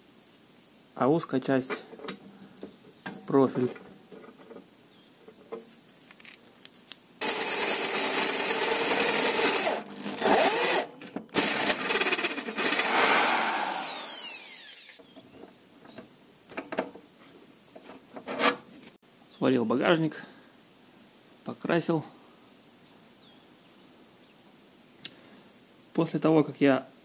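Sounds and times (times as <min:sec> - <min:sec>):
electric drill boring into metal: 0:07.2 - 0:15.0.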